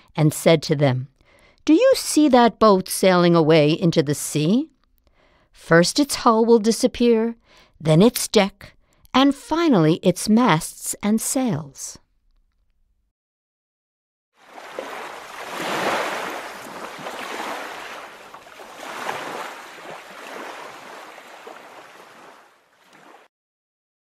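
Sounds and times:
ocean waves washing onto beach: 0:14.4 - 0:23.3.

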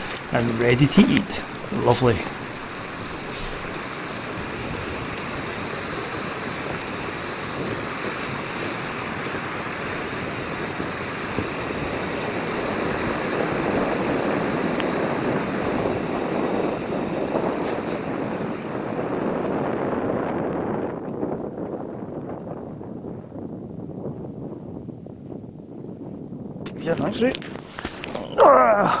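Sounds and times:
gas stove burner hissing: 0:00.0 - 0:19.5.

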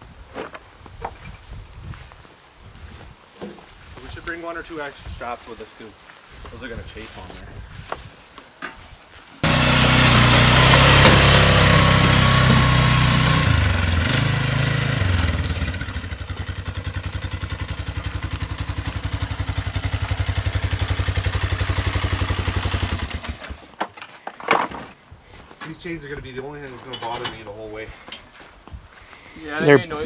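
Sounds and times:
atv engine idling: 0:09.4 - 0:23.5.

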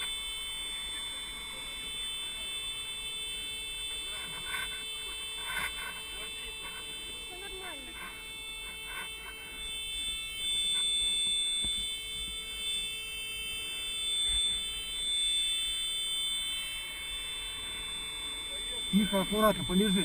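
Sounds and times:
high-pitched electronic tone: 0:00.0 - 0:20.0.

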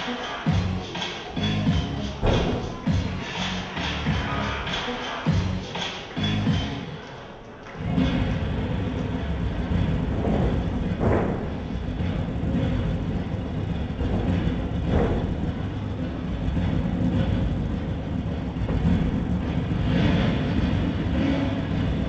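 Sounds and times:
low rumbling noise: 0:07.8 - 0:22.0.

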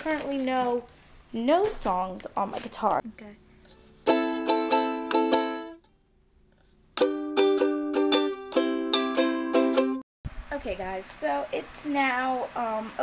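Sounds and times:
ukulele strumming chords: 0:03.7 - 0:05.9, 0:07.0 - 0:10.0.

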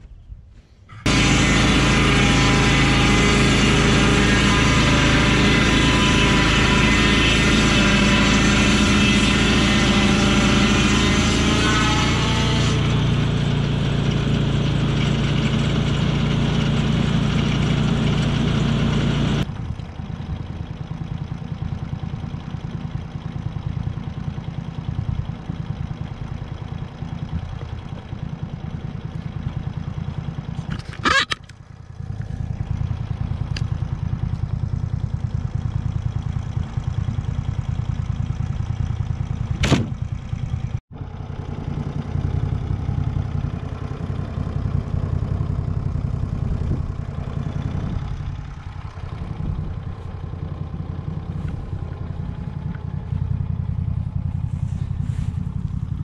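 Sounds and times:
saw blade cutting log: 0:00.9 - 0:19.5, 0:30.1 - 0:31.6
engine idling roughly: 0:00.9 - 0:56.0
sawmill engine running hard: 0:01.0 - 0:56.0.

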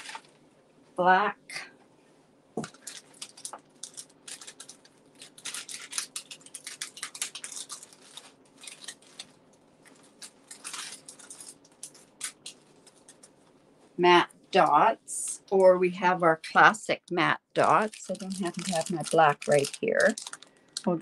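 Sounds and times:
paper and plastic rustling: 0:00.0 - 0:00.5, 0:02.6 - 0:13.6, 0:17.6 - 0:21.0.

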